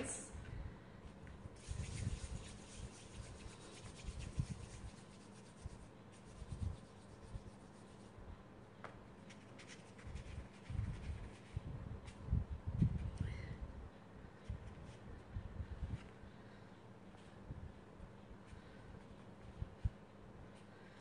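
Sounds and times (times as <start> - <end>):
clay rubbing between palms: 1.0 - 13.4.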